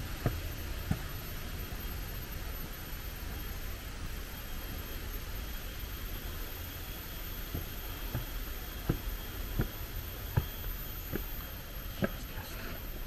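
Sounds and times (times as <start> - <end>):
footsteps on stone paving: 7.4 - 13.0.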